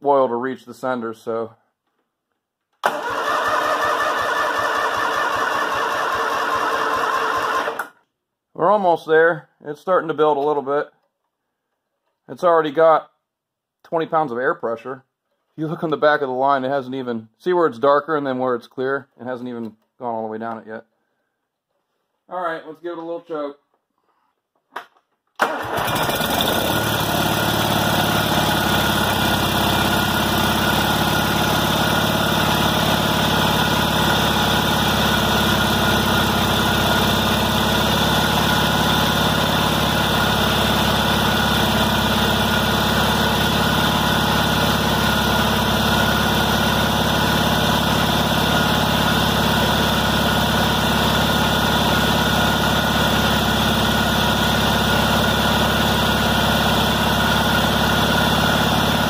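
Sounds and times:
tractor engine running: 2.8 - 7.9, 25.4 - 59.0.

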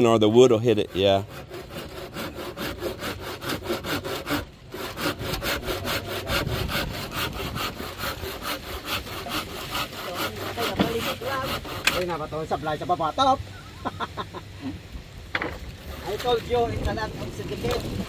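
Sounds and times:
handsaw cutting bamboo: 0.3 - 12.5, 15.8 - 16.4.

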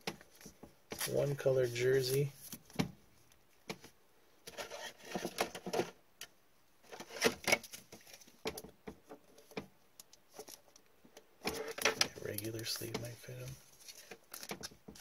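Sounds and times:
plastic card sleeve rustling and clicking: 11.5 - 15.0.

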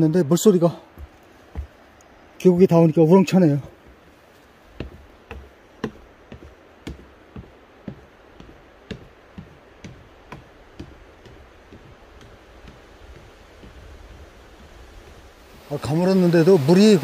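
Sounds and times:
footsteps on wooden stairs: 0.9 - 2.0, 3.7 - 15.4.

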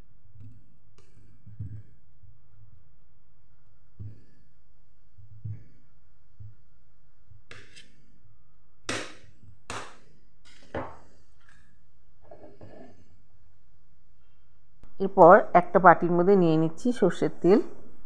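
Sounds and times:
knife cutting and knocking on board: 8.9 - 11.0.

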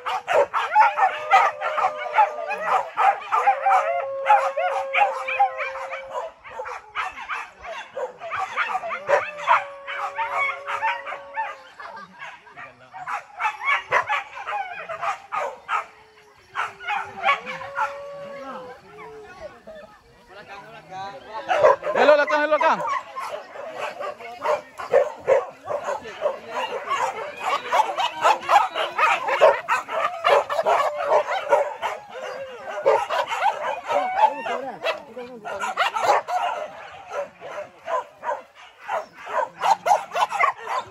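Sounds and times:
dogs yelping and barking: 0.0 - 20.3, 21.2 - 40.9
dogs yipping and whining: 24.7 - 37.3.

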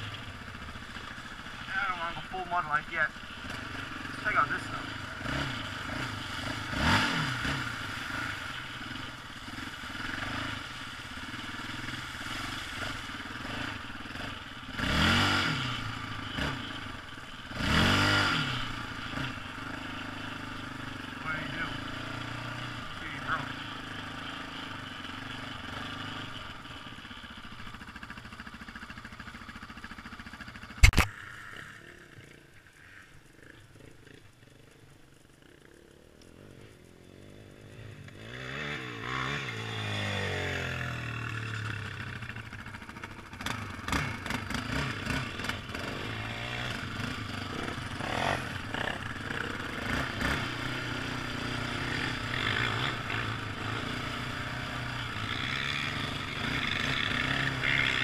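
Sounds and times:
quad engine revving: 0.0 - 29.6, 35.7 - 58.0
sharp knock: 30.8 - 31.1.

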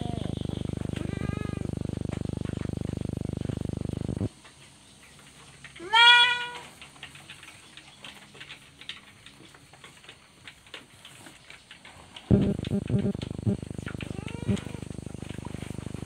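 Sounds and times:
goat kid bleating: 1.0 - 1.7, 5.8 - 6.7, 14.0 - 14.9.

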